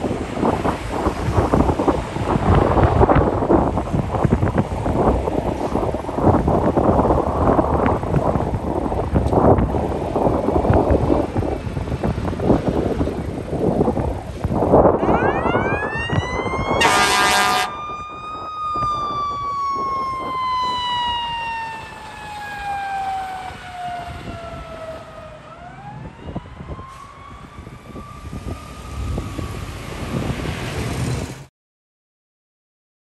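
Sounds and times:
truck engine rumble: 0.0s - 31.5s
fire truck siren: 14.7s - 30.3s
loud horn blast: 16.8s - 17.8s.

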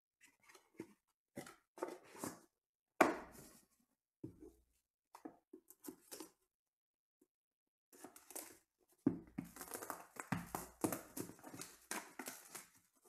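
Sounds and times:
cards and box rustling: 9.4s - 13.0s.

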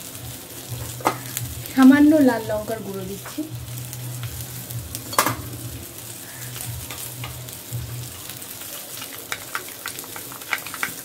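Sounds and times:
fish sizzling in oil: 0.0s - 11.0s.

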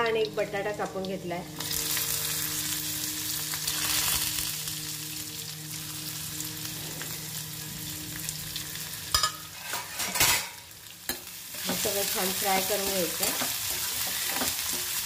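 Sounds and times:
low hum: 0.0s - 9.1s
vegetables sizzling in hot oil: 0.0s - 15.0s.

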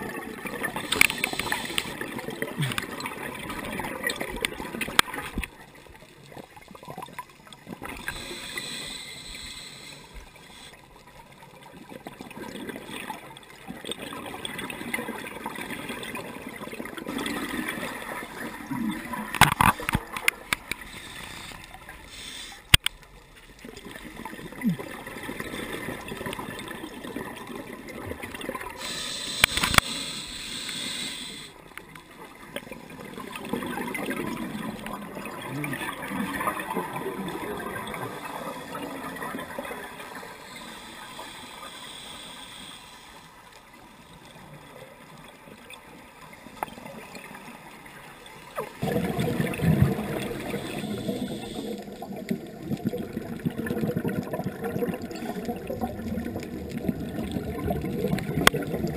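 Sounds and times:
exhaled bubbles: 0.0s - 5.5s, 11.8s - 20.4s, 23.8s - 29.8s, 32.6s - 41.3s, 48.6s - 58.9s
diver breathing through regulator: 0.8s - 2.0s, 8.0s - 10.8s, 20.8s - 22.7s, 28.8s - 31.6s, 40.2s - 43.4s, 50.3s - 52.0s.

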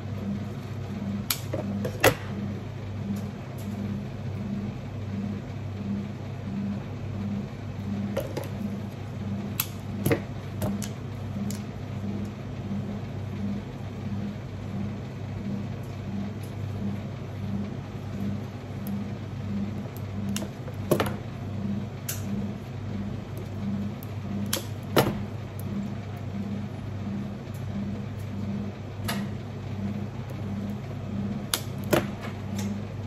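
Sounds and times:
low machine hum: 0.0s - 33.0s.

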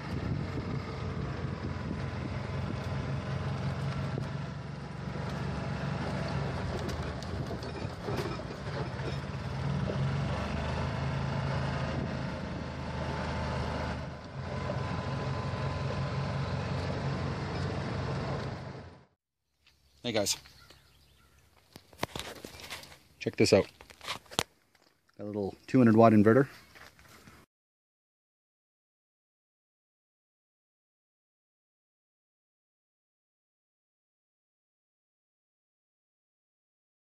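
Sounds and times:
golf cart engine humming: 0.0s - 19.1s.

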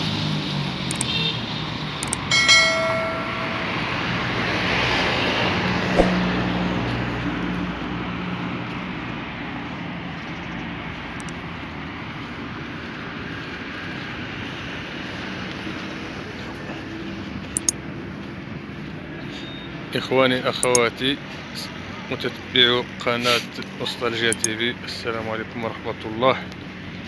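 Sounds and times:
cars driving past: 0.0s - 20.0s
sharp clicks: 0.9s - 1.2s, 2.0s - 3.5s, 11.2s - 11.4s, 20.6s - 20.8s
short ringing tone: 2.0s - 4.5s.

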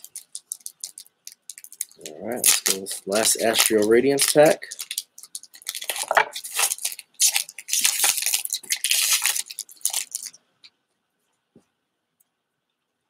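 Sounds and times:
foil wrapper crinkling and tearing: 0.0s - 10.4s.

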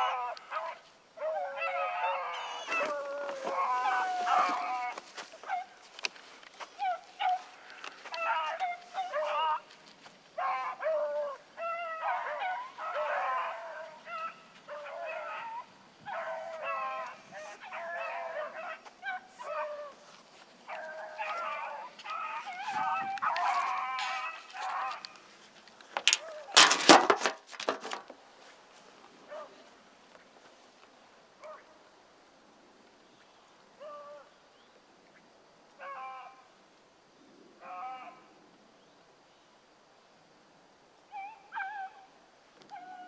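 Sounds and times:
hounds baying: 0.0s - 25.3s.

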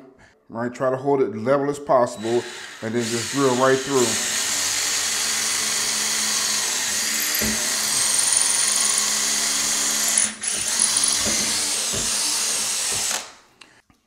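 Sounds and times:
cordless drill whining: 2.2s - 13.5s.

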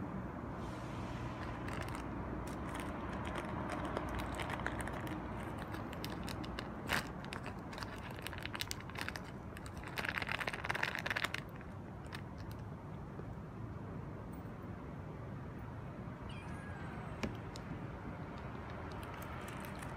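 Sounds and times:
low background hum: 0.0s - 19.9s
kitten crunching dry food: 1.3s - 12.8s, 17.2s - 19.9s.

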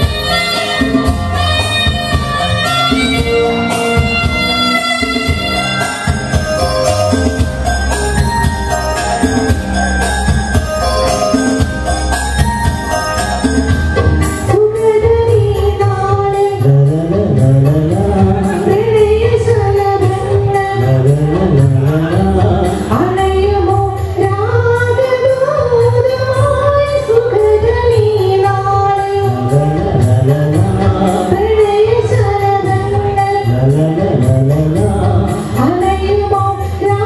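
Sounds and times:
amplified backing music: 0.0s - 37.0s
man and woman singing duet: 14.6s - 37.0s.

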